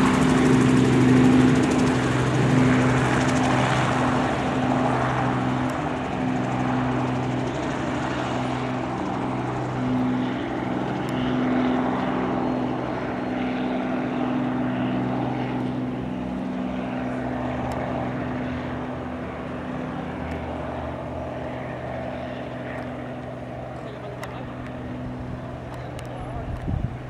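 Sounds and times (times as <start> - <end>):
helicopter drone: 0.0 - 27.0.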